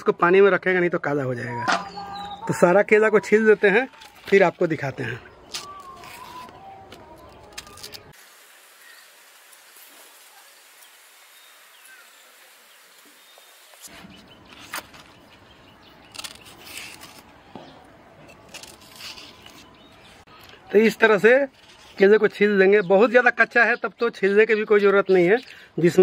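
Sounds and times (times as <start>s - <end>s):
outdoor background hiss: 8.1s - 16.1s.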